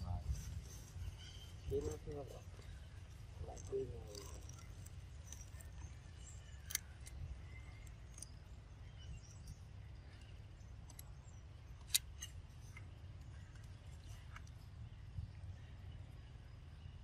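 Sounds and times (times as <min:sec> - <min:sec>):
faint bird chirps: 0:00.0 - 0:17.0
sharp clicks: 0:03.6 - 0:08.4, 0:10.8 - 0:12.8.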